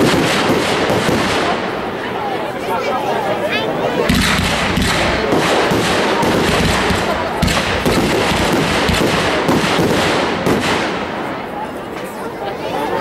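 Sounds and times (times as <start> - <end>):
heavy fireworks booms: 0.0 - 2.2, 4.0 - 11.8
fireworks bursts and crackling bangs: 0.0 - 2.4, 3.5 - 12.2.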